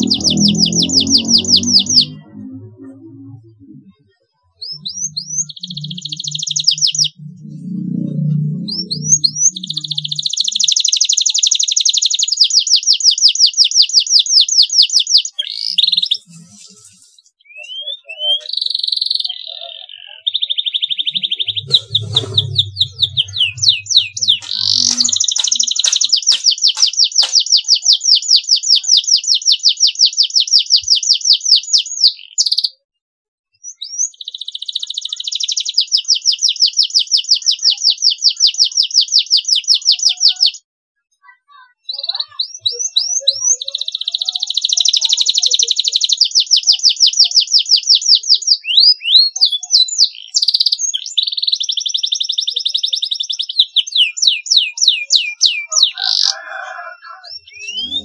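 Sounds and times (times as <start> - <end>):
low rumble: 0.0 - 3.9, 7.1 - 9.7, 21.3 - 25.3
canary singing trills: 0.0 - 32.8, 33.5 - 40.6, 41.7 - 58.0.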